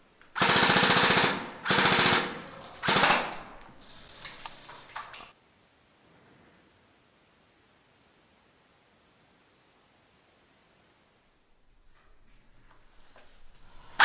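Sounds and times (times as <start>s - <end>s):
airsoft rifle bursts: 0.3s - 5.3s
faint rapid shots: 0.4s - 5.3s.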